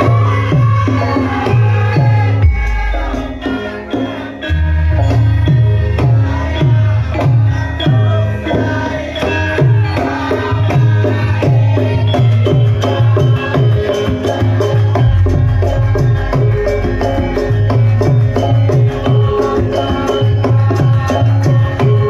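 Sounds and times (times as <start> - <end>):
ringing metallophone notes: 0.0 - 22.0
deep drum strokes: 15.0 - 19.4
deep gong tone: 15.0 - 19.4.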